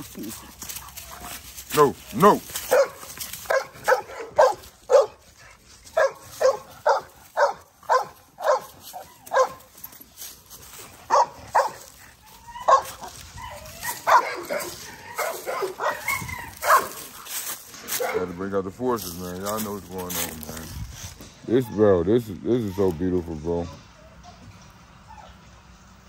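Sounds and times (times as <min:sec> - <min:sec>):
dog barking: 0:02.6 - 0:05.2, 0:05.9 - 0:09.7, 0:11.0 - 0:11.9, 0:12.5 - 0:17.3, 0:17.9 - 0:18.4
dog whining yips: 0:07.9 - 0:09.6, 0:11.6 - 0:16.9, 0:23.9 - 0:25.4.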